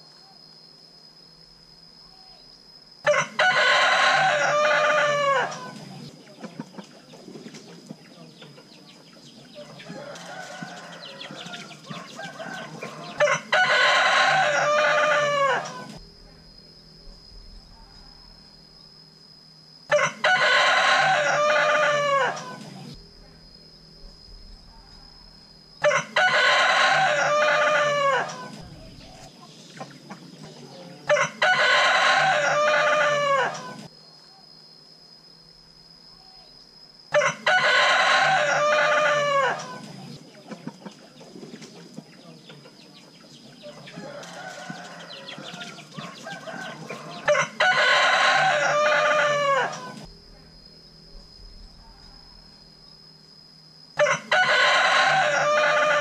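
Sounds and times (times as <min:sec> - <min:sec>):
rooster crowing: 0:03.0 - 0:06.1, 0:09.5 - 0:16.0, 0:19.9 - 0:23.0, 0:24.9 - 0:29.4, 0:30.6 - 0:33.9, 0:37.1 - 0:40.1, 0:43.6 - 0:50.1, 0:54.0 - 0:56.0.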